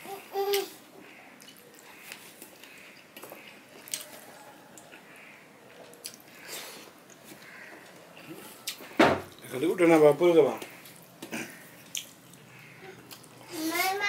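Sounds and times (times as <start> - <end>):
wet chewing: 1.3 - 9.5, 10.5 - 13.6
lip smacks: 10.6 - 13.4.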